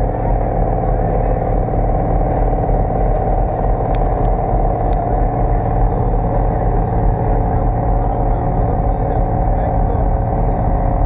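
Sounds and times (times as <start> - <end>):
ship engine humming: 0.0 - 11.0.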